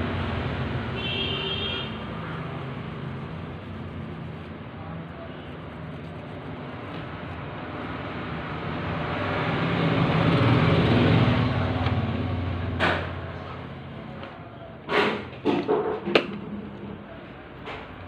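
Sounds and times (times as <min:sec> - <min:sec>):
vehicle passing by: 0:00.0 - 0:14.1.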